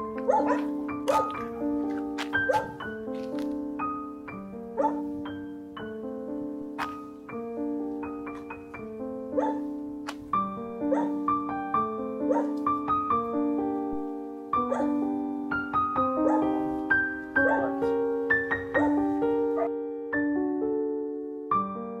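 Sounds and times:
slow piano melody: 0.0s - 22.0s
dog barking: 0.2s - 1.5s, 2.4s - 2.8s, 4.8s - 5.2s, 9.3s - 9.7s, 10.8s - 11.3s, 12.2s - 12.6s, 14.6s - 15.0s, 16.2s - 16.6s, 17.4s - 18.0s, 18.7s - 19.7s.

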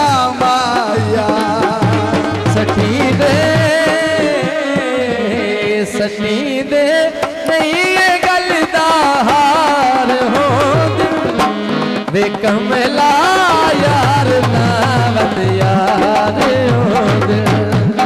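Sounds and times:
hand drum beat: 0.0s - 4.4s, 13.7s - 18.0s
ornamented melody line: 9.6s - 18.0s.

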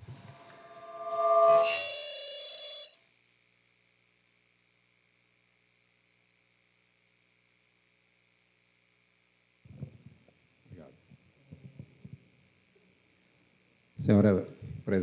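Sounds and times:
high-pitched feedback squeal: 0.0s - 3.1s.

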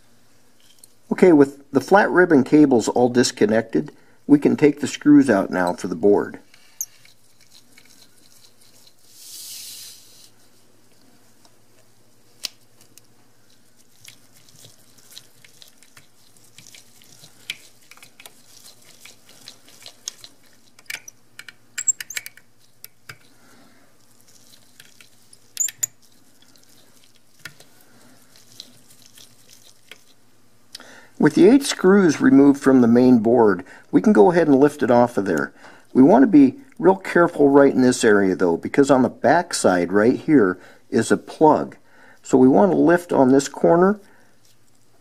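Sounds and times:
short soft hiss: 9.1s - 10.4s.

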